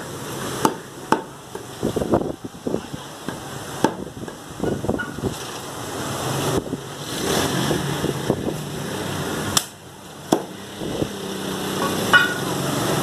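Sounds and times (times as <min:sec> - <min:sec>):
cleaver chopping on wooden block: 0:00.6 - 0:01.6, 0:03.3 - 0:04.1, 0:10.3 - 0:10.6.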